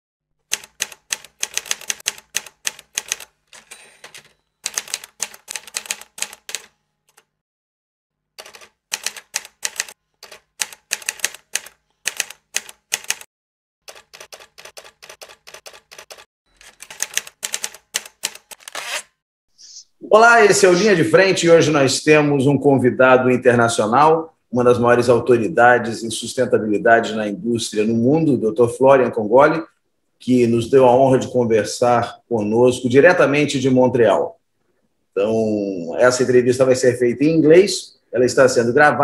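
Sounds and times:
typewriter keys clicking: 0:00.5 - 0:07.3, 0:08.4 - 0:13.3, 0:13.9 - 0:18.6.

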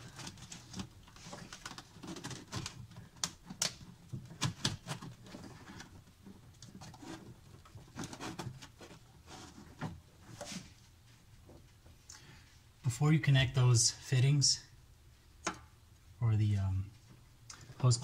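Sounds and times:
rubber hose being handled: 0:00.0 - 0:12.0.

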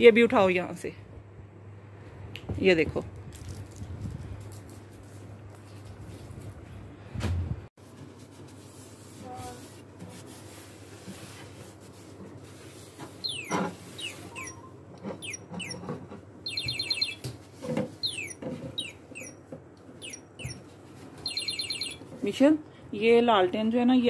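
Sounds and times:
bird trill: 0:13.2 - 0:15.8, 0:16.4 - 0:17.3, 0:18.0 - 0:19.4, 0:20.0 - 0:20.6, 0:21.2 - 0:22.0
bird chirping: 0:13.2 - 0:17.3, 0:18.0 - 0:19.4, 0:20.0 - 0:20.6, 0:21.2 - 0:22.0.

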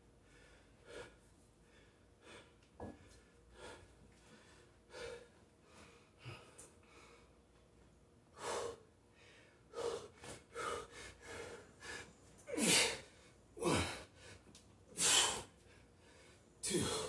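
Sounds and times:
man breathing hard: 0:00.2 - 0:07.4, 0:08.3 - 0:17.0
man grunting: 0:13.6 - 0:14.0, 0:16.6 - 0:17.0.

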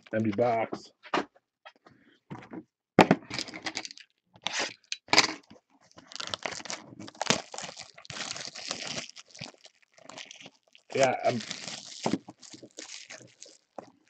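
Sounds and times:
plastic wrappers crinkling and tearing: 0:05.8 - 0:14.0.

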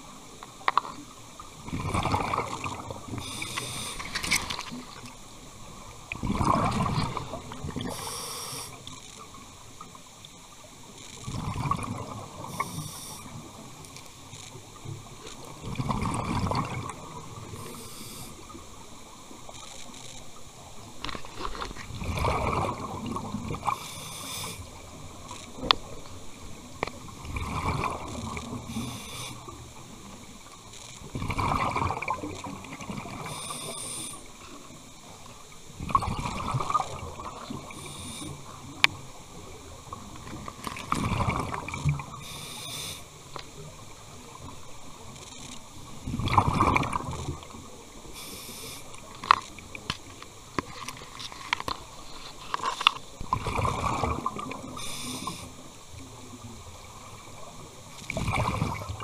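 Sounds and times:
exhaled bubbles underwater: 0:01.0 - 0:09.4, 0:11.2 - 0:13.8, 0:14.8 - 0:18.8, 0:21.8 - 0:30.4, 0:31.0 - 0:42.9, 0:45.9 - 0:48.1, 0:53.2 - 0:59.0
regulator hiss: 0:03.1 - 0:04.4, 0:07.8 - 0:09.2, 0:12.4 - 0:13.9, 0:17.4 - 0:18.8, 0:23.7 - 0:25.0, 0:28.7 - 0:29.6, 0:33.2 - 0:34.5, 0:37.5 - 0:38.8, 0:42.1 - 0:43.3, 0:48.0 - 0:49.0, 0:54.7 - 0:55.7.

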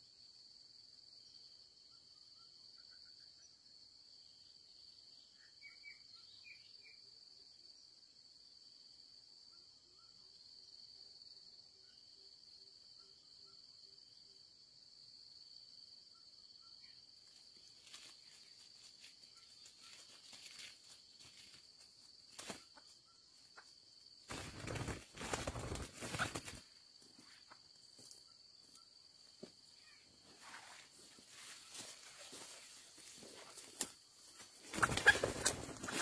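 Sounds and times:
insects trilling: 0:15.2 - 0:36.0.

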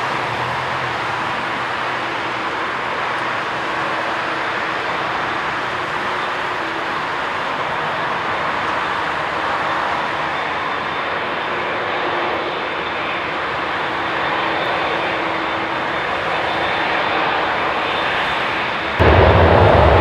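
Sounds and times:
jet engines running: 0:00.0 - 0:20.0
deep rumble: 0:19.0 - 0:20.0.

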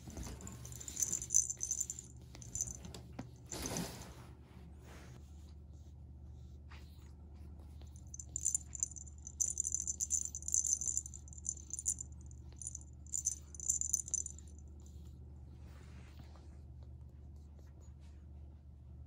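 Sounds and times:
small bell jingling: 0:00.0 - 0:03.0, 0:08.0 - 0:14.6.

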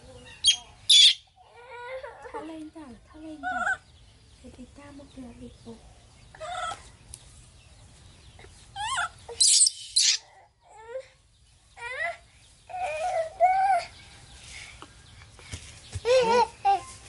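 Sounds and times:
baby monkey squealing: 0:00.3 - 0:01.8, 0:08.8 - 0:10.8
monkey screeching: 0:08.8 - 0:10.4.

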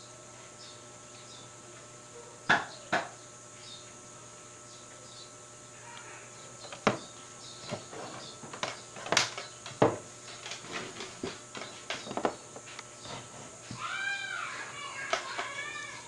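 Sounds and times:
circuit board and tools knocking: 0:06.6 - 0:13.2.

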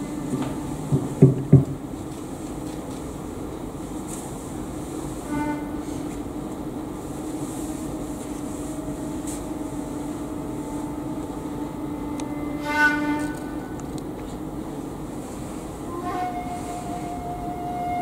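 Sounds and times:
slow wind instrument music: 0:00.0 - 0:01.2, 0:05.1 - 0:06.2, 0:07.1 - 0:14.0, 0:15.7 - 0:18.0.

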